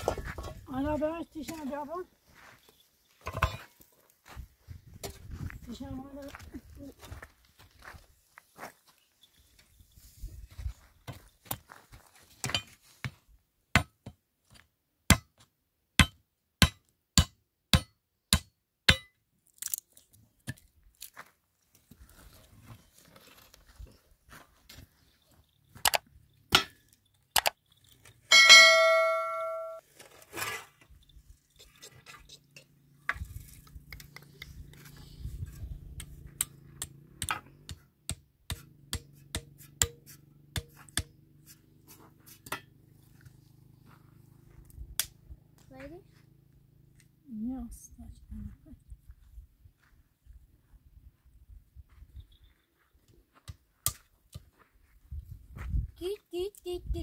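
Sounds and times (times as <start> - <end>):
metallic clang: 28.3 - 29.8.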